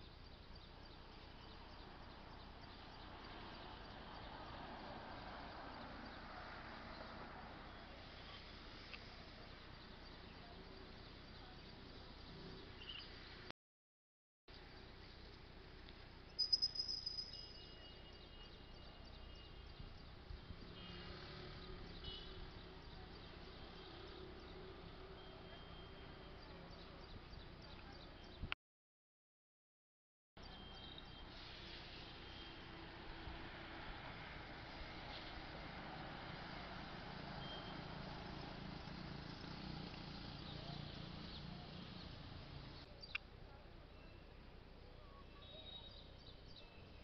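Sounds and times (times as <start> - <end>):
faint outdoor ambience: 0.0 - 13.5, 14.5 - 28.6, 30.4 - 47.0
distant traffic hum: 0.1 - 13.5, 14.8 - 28.4, 30.4 - 44.9
high thin chirps: 16.4 - 17.8
soft hiss: 31.2 - 33.0.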